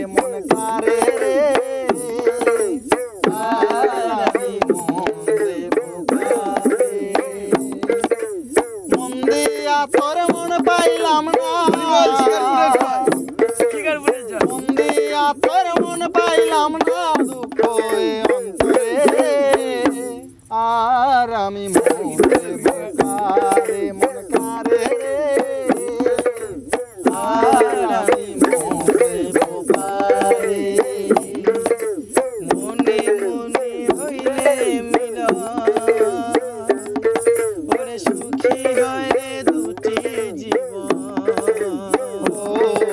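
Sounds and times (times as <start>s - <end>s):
hand drums rhythm: 0.0s - 20.6s, 21.3s - 42.9s.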